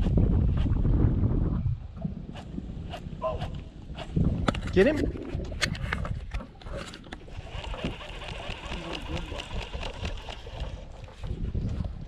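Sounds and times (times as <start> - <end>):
wind rumbling on microphone: 0.0 - 12.0
water lapping against hull: 4.9 - 12.0.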